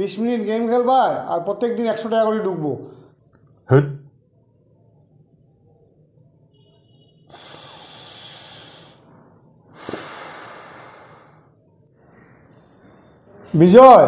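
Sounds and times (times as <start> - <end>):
man breathing in through nose: 7.3 - 12.6.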